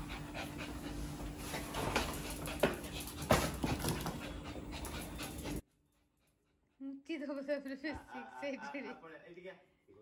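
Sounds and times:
dog panting: 0.0 - 7.1.

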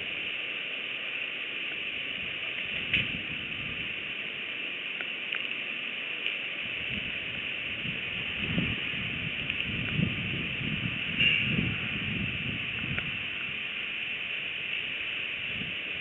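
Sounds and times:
steady high hiss: 0.0 - 16.0
wind rumbles: 2.0 - 4.3, 6.6 - 16.0.

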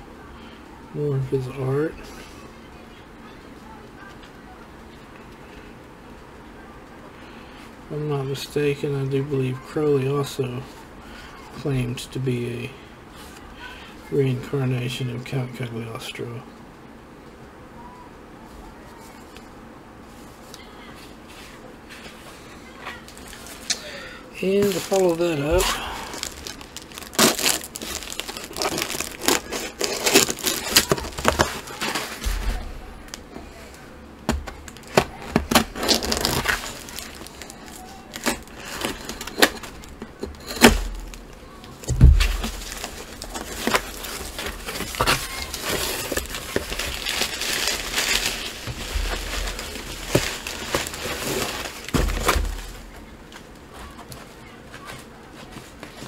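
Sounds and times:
paper crinkling and rustling: 20.1 - 23.7, 24.4 - 33.8, 34.6 - 56.0.

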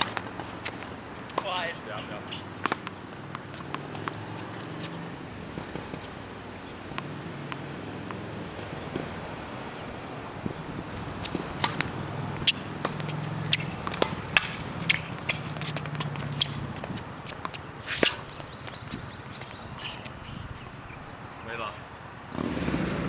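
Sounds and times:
shoes scuffing on court: 0.0 - 6.2, 11.0 - 20.7
tennis ball hits and bounces: 0.0 - 9.2, 10.8 - 20.5.

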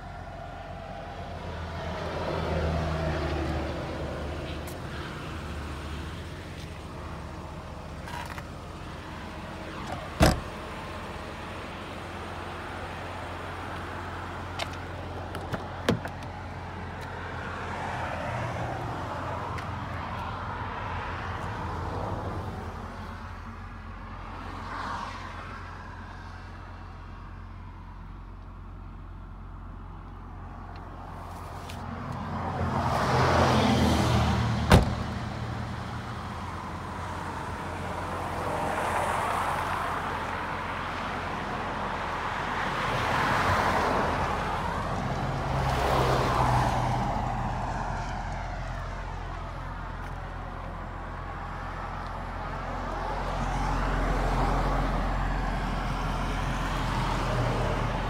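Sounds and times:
car engine idling: 3.8 - 17.6.

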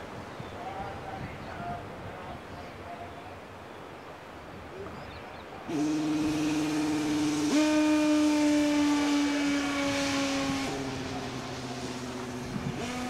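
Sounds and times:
train horn steady pitched tone: 5.7 - 10.9.

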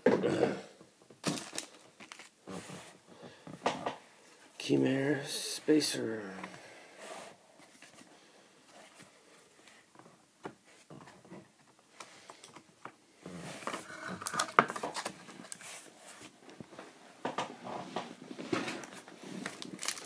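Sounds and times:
foil wrapper crinkling: 1.2 - 2.4, 18.8 - 20.0.

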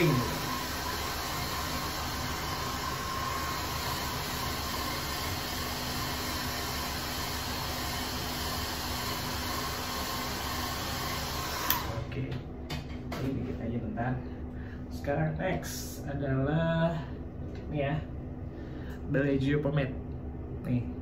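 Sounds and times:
hair dryer running: 0.0 - 13.0.

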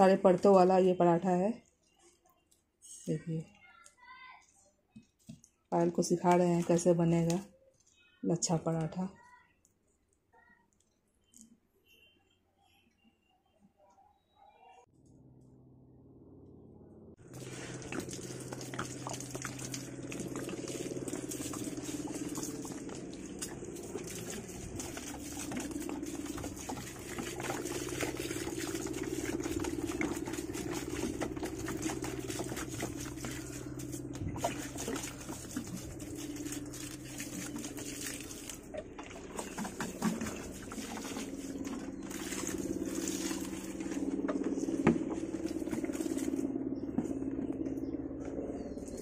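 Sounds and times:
water splashing on plants: 6.0 - 7.4, 17.2 - 46.4
low steady hum: 15.0 - 49.0.

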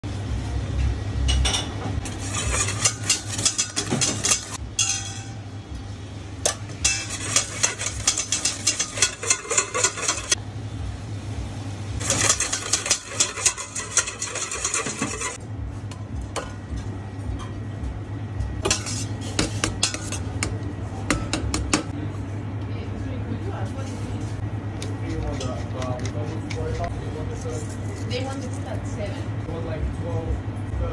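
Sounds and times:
steady low hum: 0.0 - 30.9
whisk rattling in metal bowl: 2.0 - 5.0, 6.5 - 10.4, 12.0 - 15.4.

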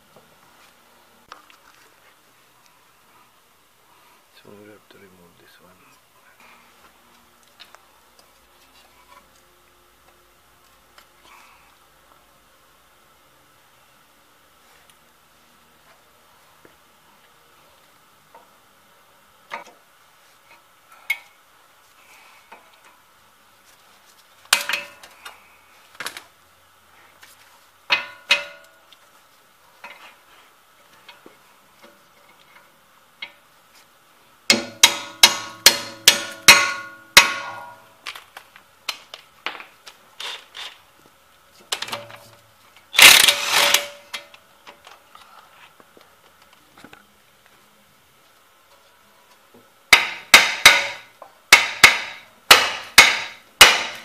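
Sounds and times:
hand tools clanking on metal: 27.9 - 28.8
ringing metal strikes: 34.5 - 37.9.

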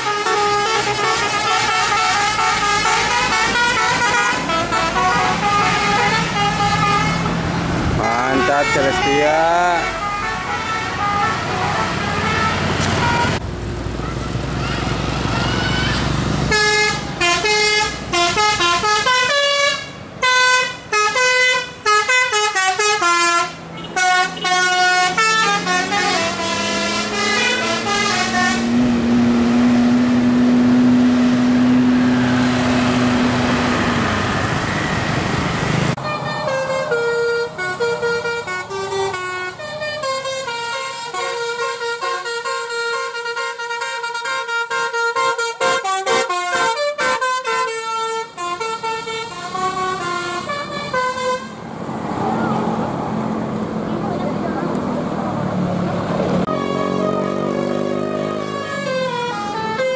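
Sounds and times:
musical air horn melodies: 0.0 - 7.4, 8.0 - 13.4, 16.5 - 29.1, 36.0 - 51.6, 56.4 - 59.9
bus engine revving: 0.0 - 59.9.

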